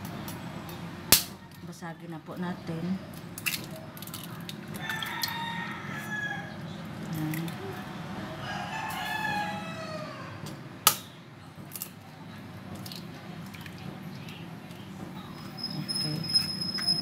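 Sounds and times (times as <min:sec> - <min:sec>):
rooster crowing: 0:04.8 - 0:06.6, 0:08.2 - 0:10.4.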